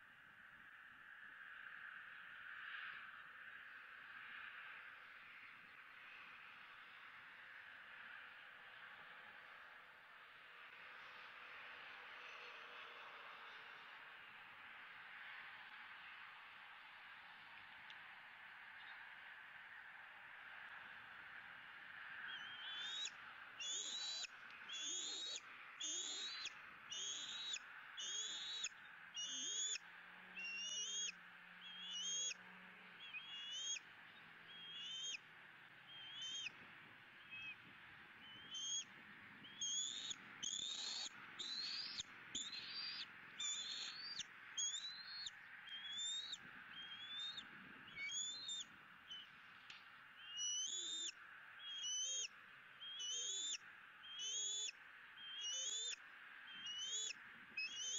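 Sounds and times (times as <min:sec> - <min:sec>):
eagle whistled chirps: 0:22.3 - 0:29.8, 0:30.4 - 0:31.1, 0:31.7 - 0:32.4, 0:33.0 - 0:33.8, 0:34.5 - 0:35.2, 0:35.9 - 0:36.5, 0:38.2 - 0:49.3, 0:50.2 - 0:57.9.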